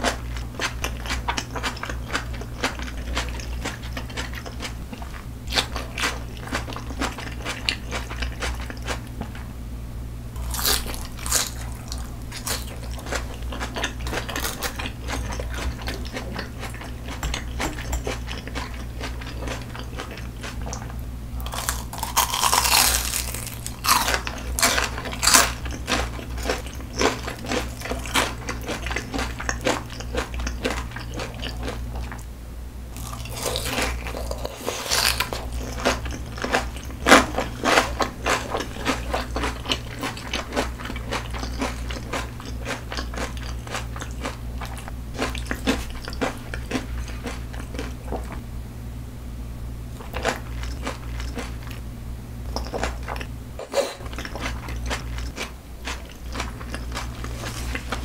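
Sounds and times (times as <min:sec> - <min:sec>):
chewing and crunchy bites: 0:00.0 - 0:09.3, 0:10.4 - 0:32.2, 0:33.0 - 0:48.4, 0:50.0 - 0:51.8, 0:52.5 - 0:58.0
low hum: 0:00.0 - 0:58.0.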